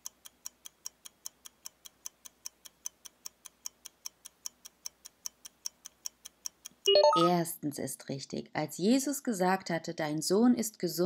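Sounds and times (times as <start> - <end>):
clock ticking: 0.0 - 7.3.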